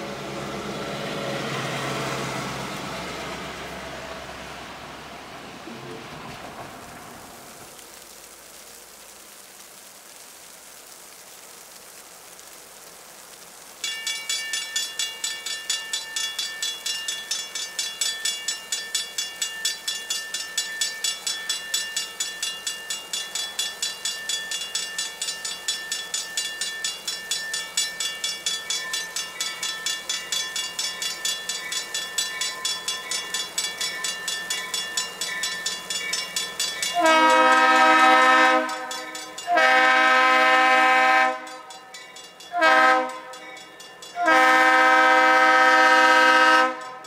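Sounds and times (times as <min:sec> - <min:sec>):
faint steady hiss: 0:01.3 - 0:47.0
railroad crossing bell ringing: 0:13.8 - 0:47.0.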